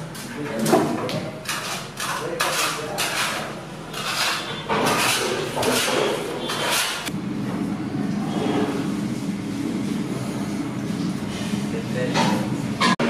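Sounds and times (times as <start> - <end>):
knife scraping icing on stone: 1.5 - 7.1.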